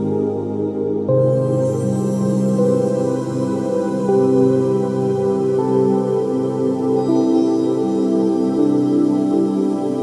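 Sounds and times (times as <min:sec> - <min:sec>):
soft new-age music: 0:00.0 - 0:10.0.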